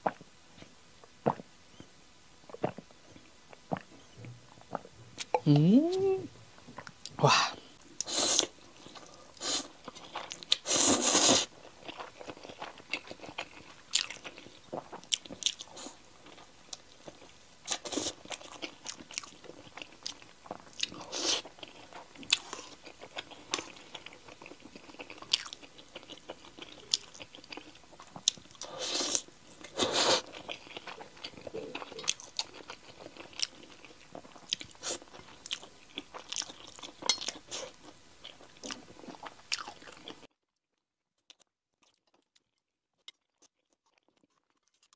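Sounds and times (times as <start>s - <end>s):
person chewing and biting: 9.8s - 40.2s
slurping noodles: 10.6s - 11.5s.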